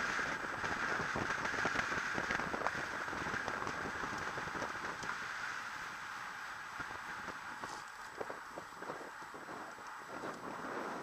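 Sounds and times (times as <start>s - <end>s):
wind noise on microphone: 0.0s - 5.3s, 6.8s - 11.0s
tyre and road noise: 0.0s - 11.0s.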